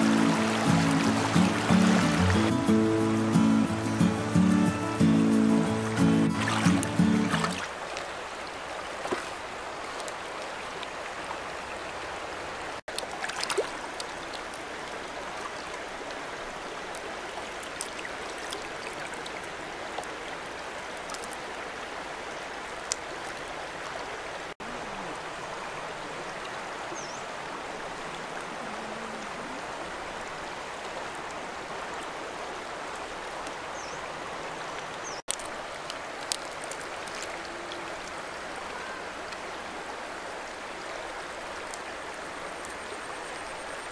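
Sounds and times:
river water rushing over rocks: 0:00.0 - 0:43.9
faint small clicks: 0:35.3 - 0:38.2.

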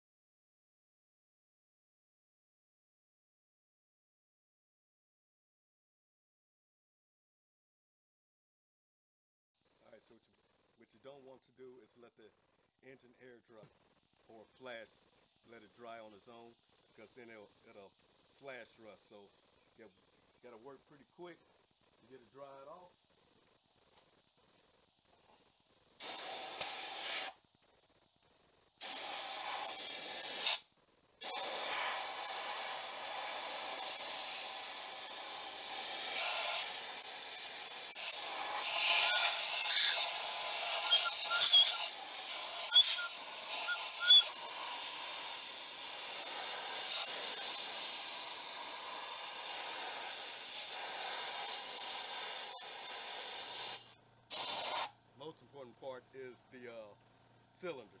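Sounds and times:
compressed air blow gun hissing: 0:26.0 - 0:27.4, 0:28.8 - 0:55.0
brief air whistles: 0:38.6 - 0:44.4.

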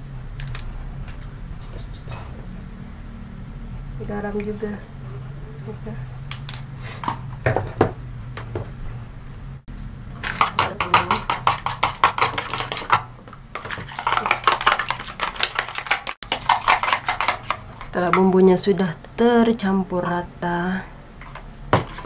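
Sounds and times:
spoon beating egg in plastic bowl: 0:10.3 - 0:18.9.

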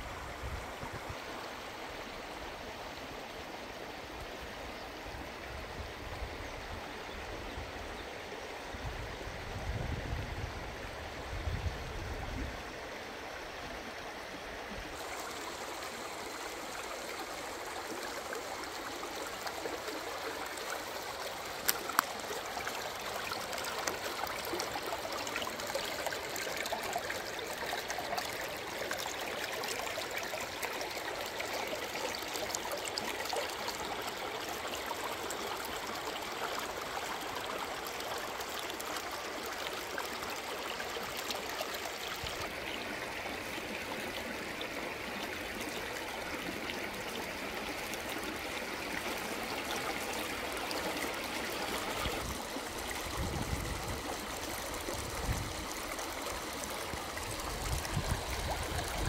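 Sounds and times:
river burbling over stones: 0:12.7 - 0:59.0.

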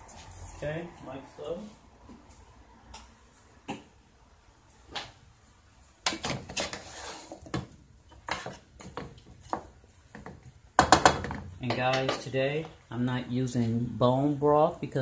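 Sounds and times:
bones knocking in a pot: 0:07.5 - 0:12.2.

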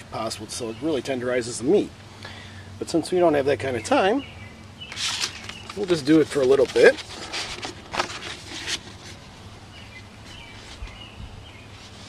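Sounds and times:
stiff paper rustling: 0:04.9 - 0:09.3.

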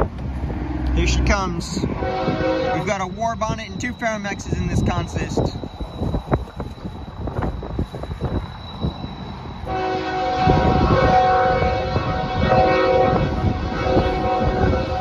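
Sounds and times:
wind rumbling on microphone: 0:00.0 - 0:15.0
locomotive air horn chord: 0:01.8 - 0:03.0, 0:09.6 - 0:15.0.

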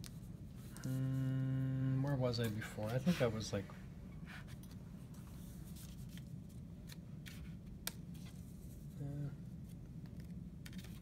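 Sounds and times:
low room hum: 0:00.0 - 0:11.0
person humming: 0:00.7 - 0:02.1, 0:09.0 - 0:09.5.

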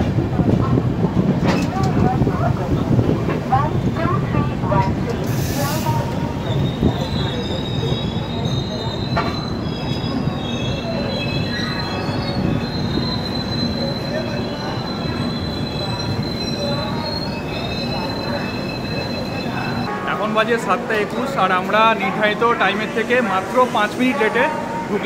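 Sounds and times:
train coach rumble: 0:00.0 - 0:20.0
train wheels squealing on rails: 0:05.2 - 0:19.9.

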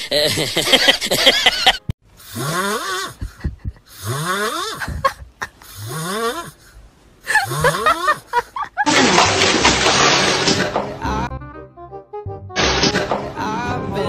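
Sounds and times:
sudden loud burst of noise: 0:12.6 - 0:13.1.

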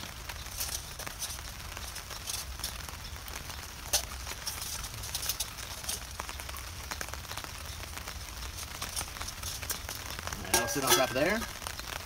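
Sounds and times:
steady high hiss: 0:07.8 - 0:12.0
metal cookware clicking: 0:10.5 - 0:11.3.

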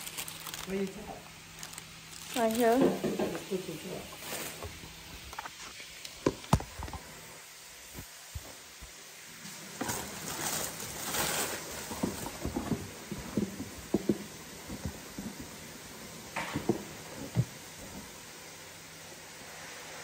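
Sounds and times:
tissue paper rustling: 0:00.0 - 0:02.8, 0:03.4 - 0:05.8, 0:09.5 - 0:13.6.

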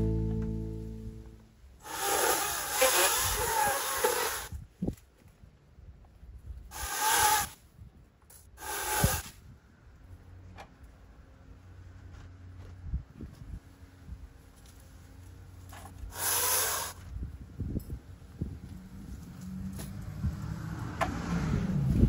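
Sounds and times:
palm fronds rustling and scraping: 0:02.0 - 0:05.4, 0:14.4 - 0:17.2.

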